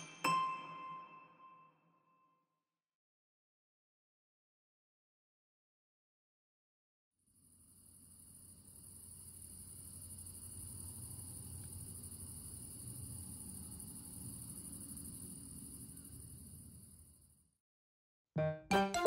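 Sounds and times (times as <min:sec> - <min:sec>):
crickets chirping: 0:07.3 - 0:17.5.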